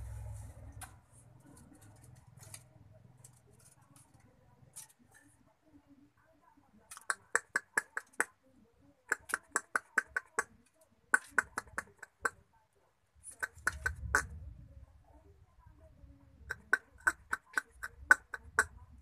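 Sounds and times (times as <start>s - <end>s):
low rumble: 0.0s - 0.9s
squirrels clicking: 6.8s - 8.4s, 9.0s - 12.4s, 13.2s - 14.4s, 16.4s - 19.0s.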